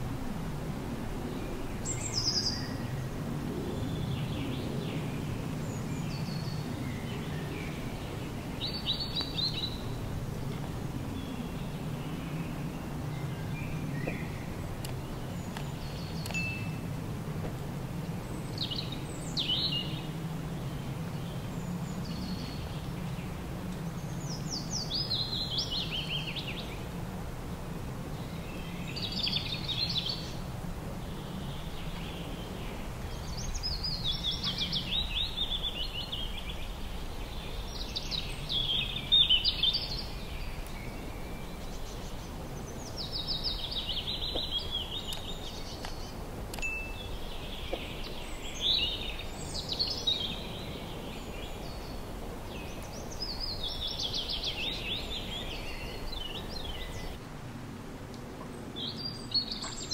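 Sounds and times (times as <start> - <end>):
songbird chirping: 1.1 - 27.0, 27.6 - 57.2, 58.1 - 59.9.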